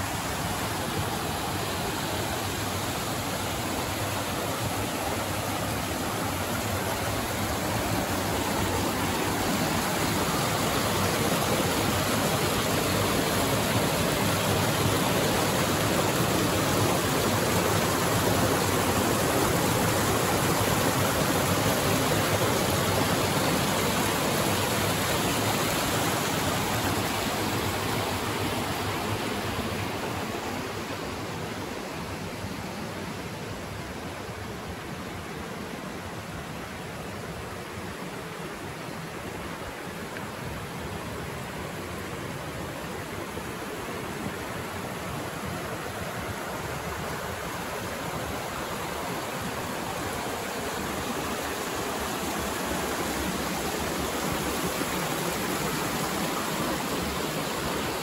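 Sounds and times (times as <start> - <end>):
rushing river water: 0.0 - 58.0.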